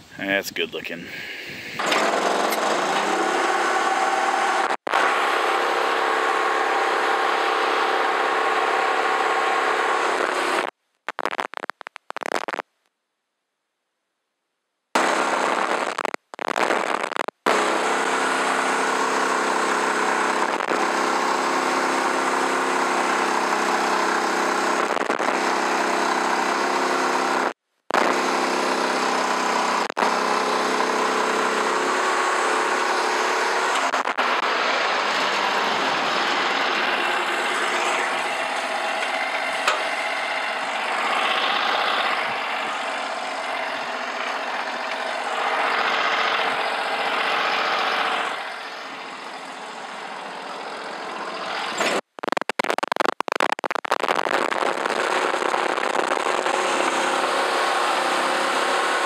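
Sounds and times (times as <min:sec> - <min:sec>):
gasoline engine running under load: 0:01.0 - 0:10.7, 0:17.5 - 0:52.2, 0:54.9 - 0:59.0.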